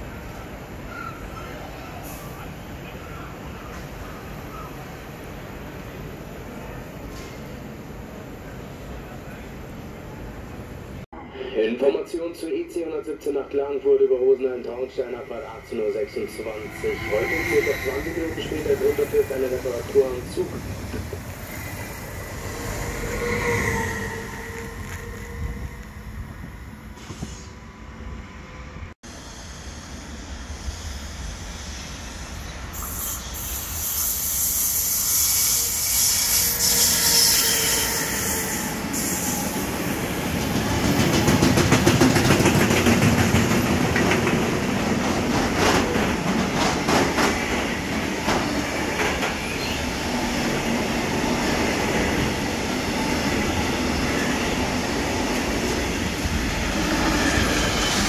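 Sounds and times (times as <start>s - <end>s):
freight train wagons rumbling: 13.0s - 27.5s, 36.0s - 58.0s
wheels clacking over rail joints: 40.4s - 49.7s.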